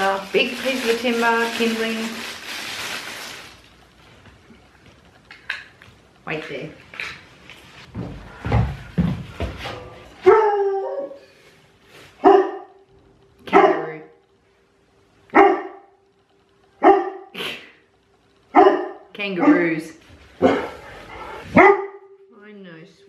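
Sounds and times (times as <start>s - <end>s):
dog barking: 12.2s - 12.8s, 13.5s - 14.1s, 15.3s - 15.9s, 16.8s - 17.3s, 18.5s - 19.8s, 20.4s - 20.8s, 21.5s - 22.1s.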